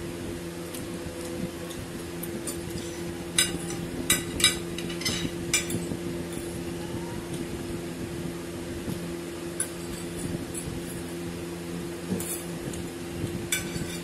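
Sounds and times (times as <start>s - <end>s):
steady low hum: 0.0s - 14.0s
forks clinking on plates: 2.4s - 6.5s, 9.6s - 10.7s, 13.5s - 14.0s.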